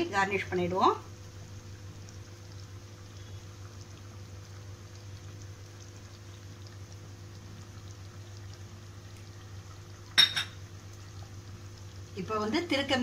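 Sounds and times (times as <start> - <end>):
curry bubbling in a pan: 0.0 - 13.0.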